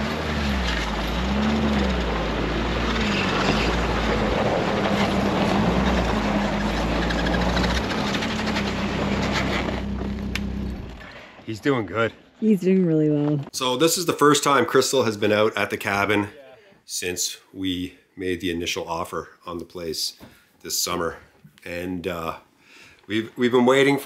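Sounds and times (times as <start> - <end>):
snowmobile engine running: 0.0 - 11.0.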